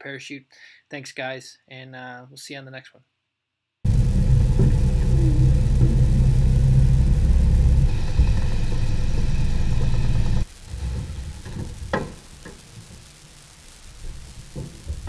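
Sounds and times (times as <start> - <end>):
engine running loud and low: 3.9 - 10.5.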